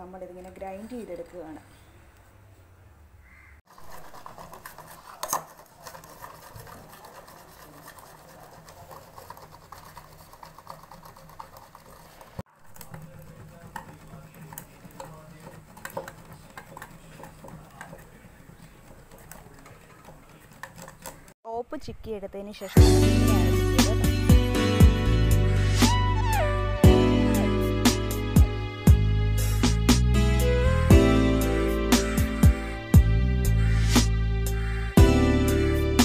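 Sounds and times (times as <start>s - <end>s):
soap grated on metal grater: 3.7s - 21.3s.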